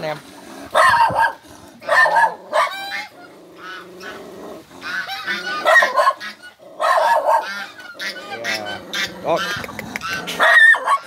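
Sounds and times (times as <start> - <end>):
geese honking: 4.8 - 11.0.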